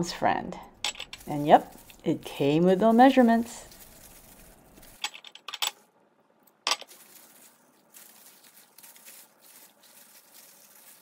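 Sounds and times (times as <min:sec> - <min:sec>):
kitchenware clinking: 0:00.8 - 0:01.4, 0:04.8 - 0:05.8, 0:06.7 - 0:07.0.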